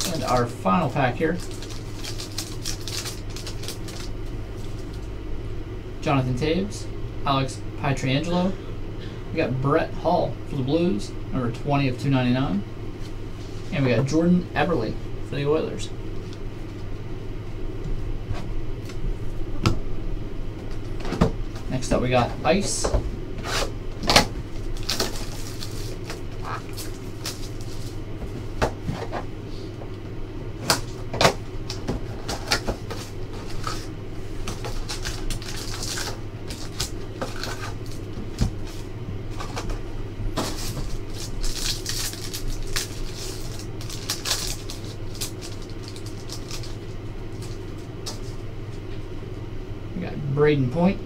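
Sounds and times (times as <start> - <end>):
foil pack tearing and crinkling: 0.0 - 5.1, 23.6 - 28.0, 30.6 - 39.7, 40.3 - 48.4
steady low hum: 0.0 - 51.0.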